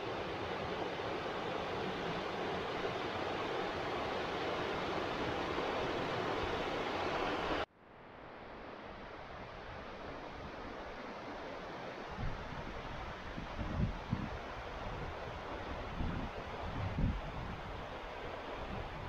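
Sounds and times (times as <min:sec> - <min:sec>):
river rushing over rocks: 0:00.0 - 0:07.6.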